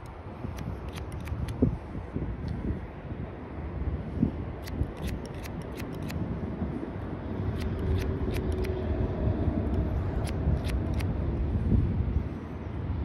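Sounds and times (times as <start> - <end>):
scissors snipping hair: 0.0 - 1.6, 4.6 - 6.2, 7.5 - 8.8, 9.7 - 11.1
steady low rumble: 0.0 - 13.0.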